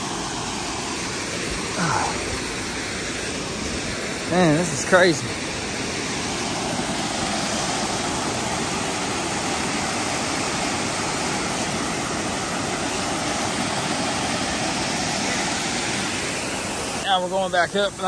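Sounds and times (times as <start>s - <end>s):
small waterfall rushing: 0.0s - 18.0s.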